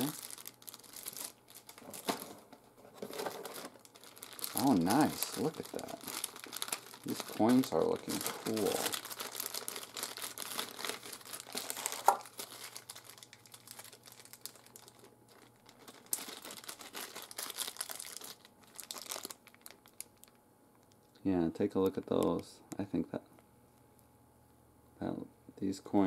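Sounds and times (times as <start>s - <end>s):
plastic bag crinkling: 0.0s - 21.0s.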